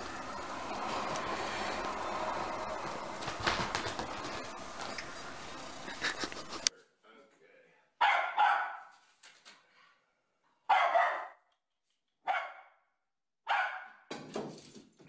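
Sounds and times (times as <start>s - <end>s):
small dog barking: 8.0s - 8.9s, 10.7s - 11.4s, 12.3s - 12.8s, 13.5s - 14.0s.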